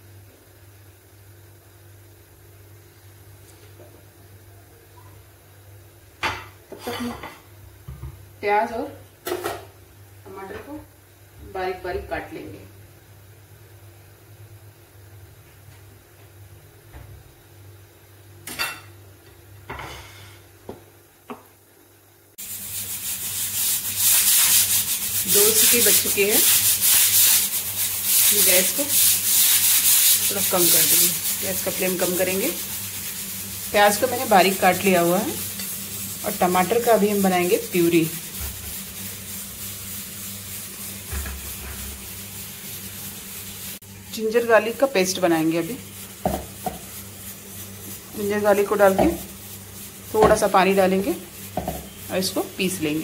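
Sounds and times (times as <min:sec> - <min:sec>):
steady hiss: 0:22.3 - 0:53.0.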